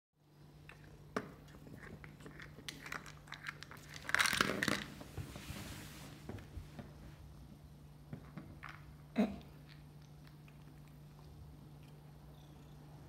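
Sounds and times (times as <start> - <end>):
crinkly scraping: 1.6 - 6.4.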